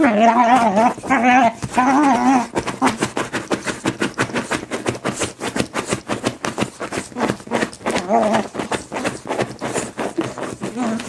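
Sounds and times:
dog yelp: 0.0 - 2.5
dogs scuffling: 0.0 - 11.0.

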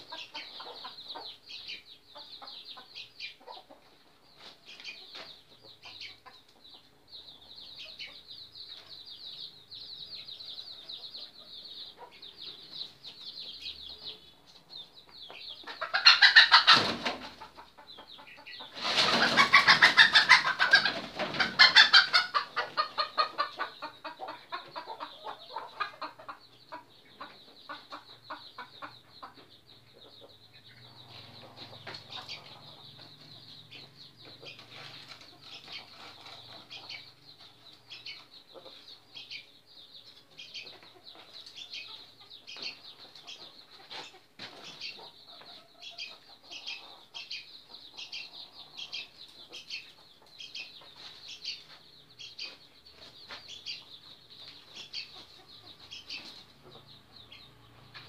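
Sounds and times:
roosters clucking: 0.0 - 58.0.

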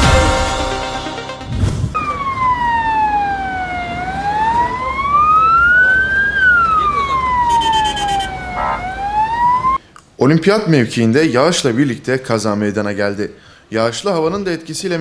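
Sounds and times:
siren wailing: 1.4 - 9.8.

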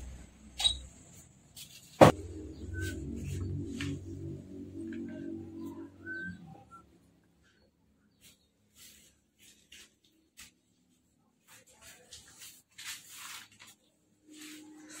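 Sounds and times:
low hum: 2.1 - 7.4
faint rustling and scraping: 7.4 - 15.0.

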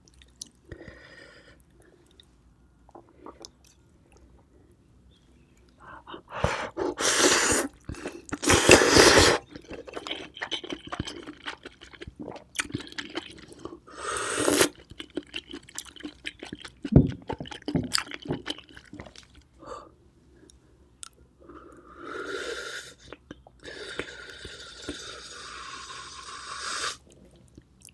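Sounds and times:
wet slurping: 6.8 - 13.3
wet chewing clicks: 9.4 - 13.7, 14.7 - 19.5.

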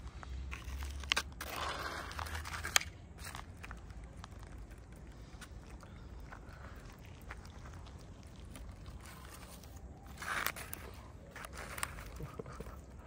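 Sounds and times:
cats chewing: 2.6 - 13.0.

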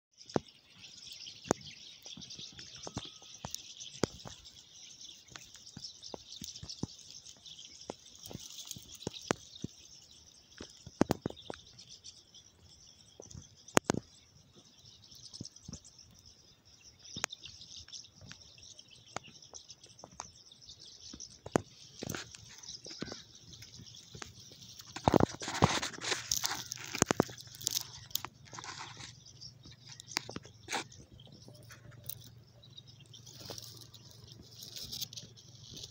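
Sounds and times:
high chirping chorus: 0.1 - 35.9
sharp clicks and crackles: 1.3 - 9.9, 10.6 - 11.8, 13.2 - 14.1, 21.1 - 32.4, 33.0 - 35.9.

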